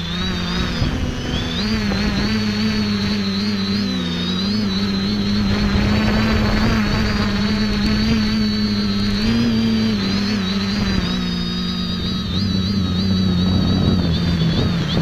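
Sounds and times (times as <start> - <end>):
drone motors whining: 0.0 - 15.0
rough low rumbling: 4.6 - 15.0.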